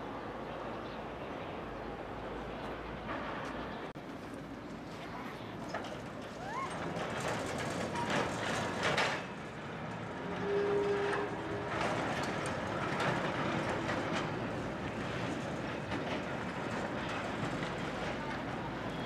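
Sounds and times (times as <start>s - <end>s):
tram rumbling on rails: 0.0s - 19.0s
wheels knocking over rail joints: 5.6s - 10.1s.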